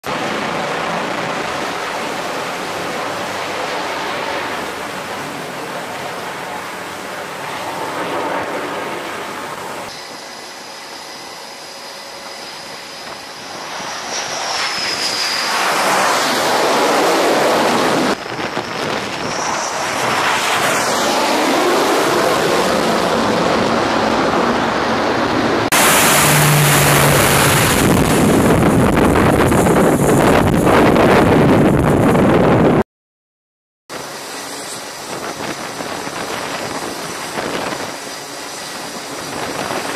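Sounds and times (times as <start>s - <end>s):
jet noise: 0.0s - 32.8s, 33.9s - 39.9s
turboprop aircraft landing: 0.0s - 32.8s, 33.9s - 39.9s
wind buffeting microphone: 13.0s - 32.8s, 34.4s - 39.9s.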